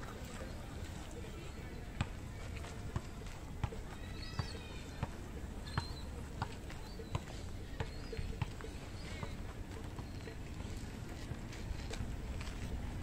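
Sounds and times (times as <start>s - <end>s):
footsteps on gravel path: 9.1s - 13.0s.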